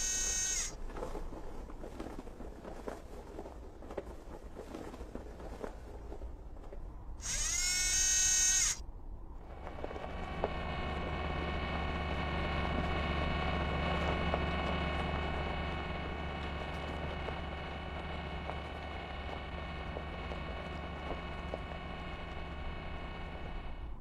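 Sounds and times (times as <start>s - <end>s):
buzzing motor hum: 0.0s - 0.8s, 7.2s - 8.8s, 9.4s - 24.0s
high servo whine: 0.0s - 0.8s, 7.2s - 8.8s, 9.5s - 24.0s.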